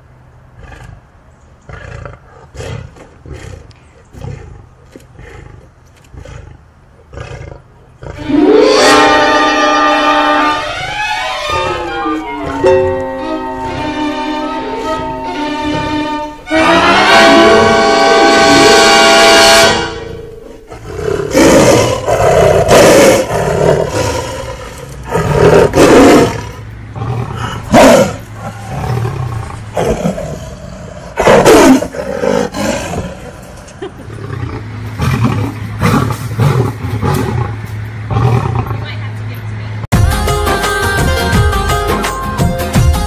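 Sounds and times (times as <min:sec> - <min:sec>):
lion roaring: 0:01.7 - 0:13.0, 0:14.7 - 0:38.8
background music: 0:08.2 - 0:21.3, 0:39.9 - 0:43.0.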